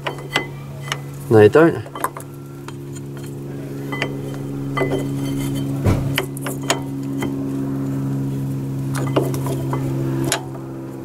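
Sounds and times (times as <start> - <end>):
metallic clinks of brake pad: 0.0 - 7.4
steady low hum: 0.0 - 11.0.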